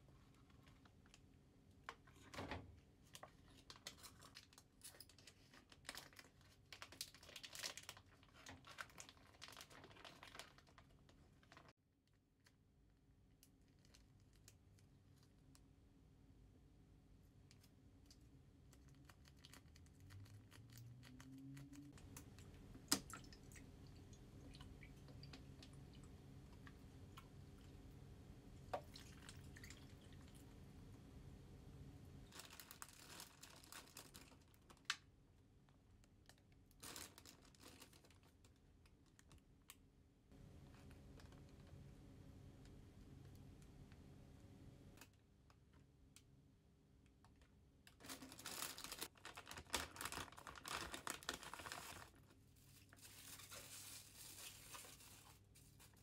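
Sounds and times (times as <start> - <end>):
packaging rustling: 3.2 - 11.7, 32.3 - 34.9, 48.0 - 56.0
water pouring into foil pan: 28.8 - 30.4.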